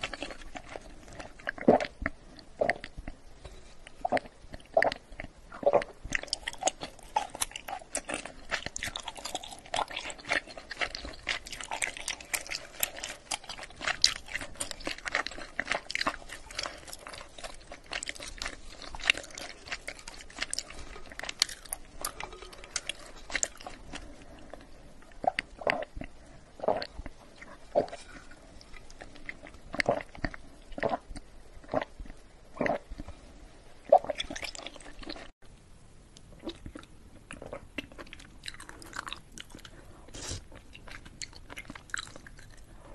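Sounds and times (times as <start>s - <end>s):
chewing tapioca pearls: 0.0s - 33.2s, 33.8s - 35.4s, 36.2s - 42.9s
sucking drink through a straw: 40.1s - 40.5s.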